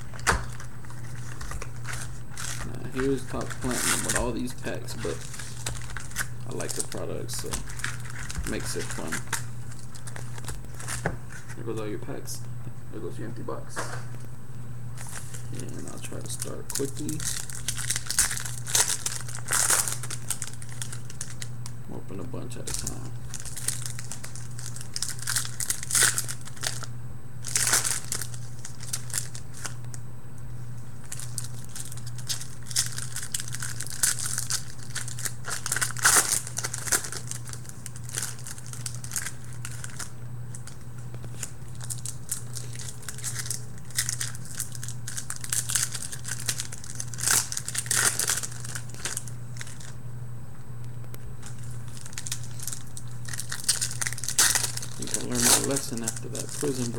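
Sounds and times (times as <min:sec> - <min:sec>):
plastic wrappers tearing and crinkling: 0:00.0 - 0:11.6, 0:15.0 - 0:21.7, 0:22.6 - 0:29.9, 0:31.0 - 0:50.0, 0:51.4 - 0:56.9
steady low hum: 0:00.0 - 0:56.9.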